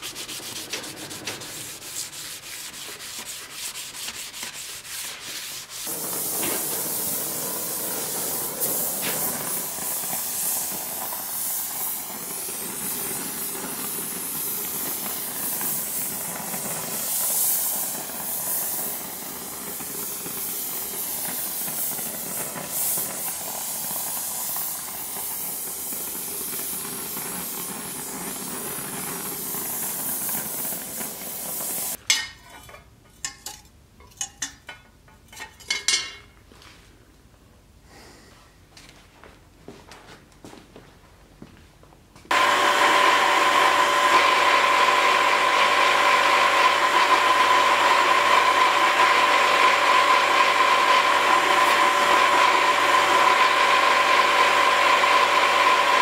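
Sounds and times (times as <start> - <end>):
hand sanding steel blade: 0.0 - 34.5
gas welding torch hissing: 5.8 - 32.0, 42.3 - 56.0.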